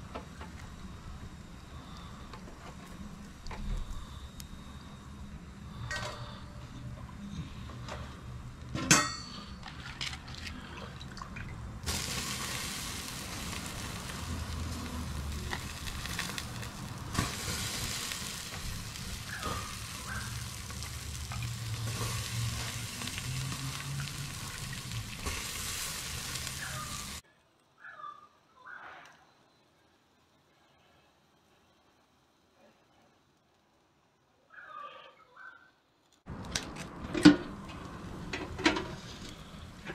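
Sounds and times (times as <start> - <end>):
meat sizzling on grill: 11.8 - 27.2.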